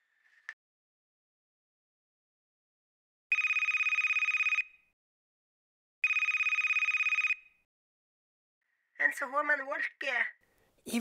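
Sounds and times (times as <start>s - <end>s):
phone ringing: 3.3s - 4.9s, 6.0s - 7.6s.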